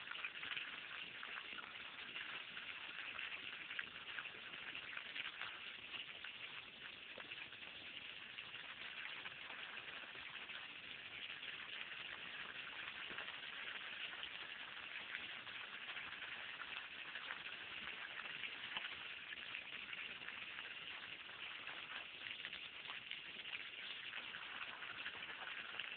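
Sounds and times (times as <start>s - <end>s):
hose water splattering on grass: 0.0s - 25.9s.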